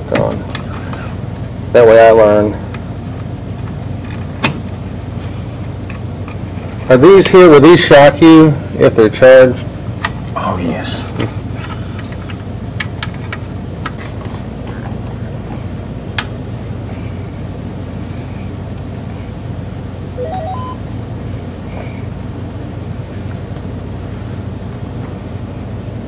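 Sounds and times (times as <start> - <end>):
steady low hum: 0.0 - 26.0
rising startup chime: 20.2 - 20.9.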